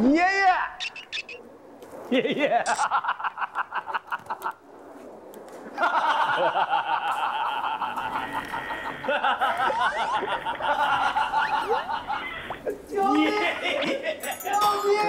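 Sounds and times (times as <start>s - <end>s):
people laughing and shrieking: 5.8s - 15.0s.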